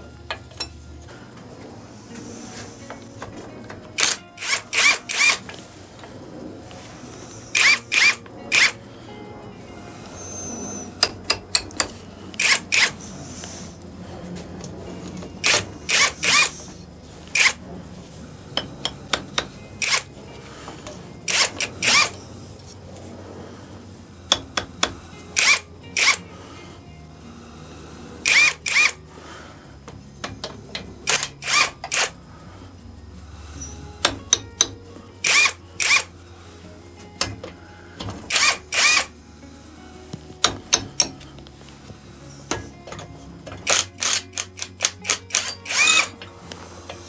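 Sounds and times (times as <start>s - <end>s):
cordless drill bursts: 4.0s - 5.6s, 7.2s - 8.8s, 12.4s - 13.0s, 15.4s - 17.6s, 19.8s - 20.2s, 21.3s - 22.2s, 25.3s - 26.3s, 28.2s - 29.0s, 31.1s - 32.2s, 35.2s - 36.1s, 38.3s - 39.1s, 43.6s - 46.2s.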